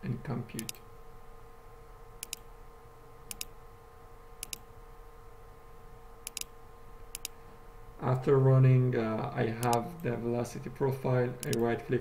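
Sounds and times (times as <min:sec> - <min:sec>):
faint steady hum: 0:00.0 - 0:12.0
computer mouse clicking: 0:00.6 - 0:00.8, 0:02.2 - 0:02.5, 0:03.3 - 0:03.5, 0:04.4 - 0:04.6, 0:06.2 - 0:06.5, 0:07.1 - 0:07.4, 0:09.6 - 0:09.8, 0:11.4 - 0:11.7.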